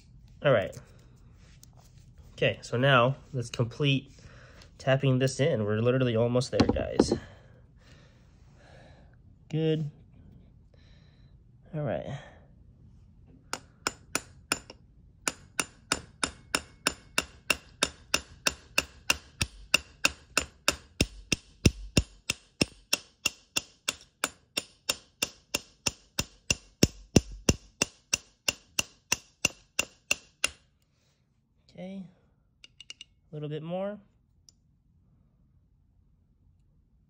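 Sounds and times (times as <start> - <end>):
hammer tapping steel punch: 6.6 - 7.3, 13.5 - 30.6, 32.6 - 33.2.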